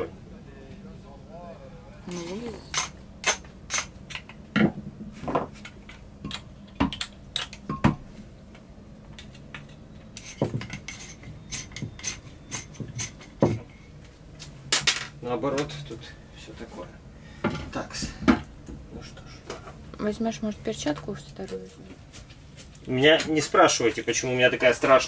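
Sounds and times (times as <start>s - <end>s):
clicks and knocks of parts: 5.6s - 7.7s.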